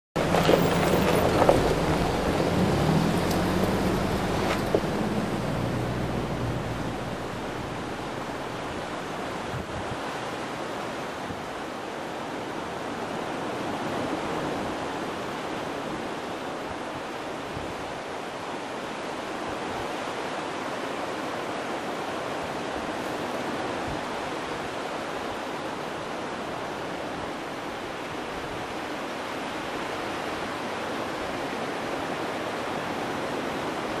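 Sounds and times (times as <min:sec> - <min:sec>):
vehicle engine: 0:00.2 - 0:09.5
river rushing: 0:00.2 - 0:34.0.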